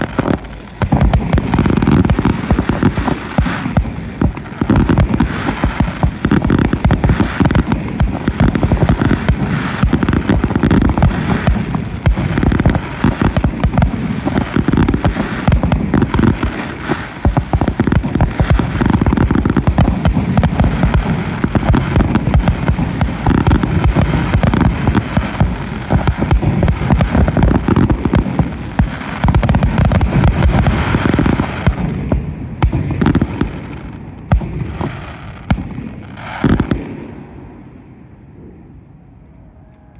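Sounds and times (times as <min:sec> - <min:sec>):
fireworks bursts: 0:00.0 - 0:38.6.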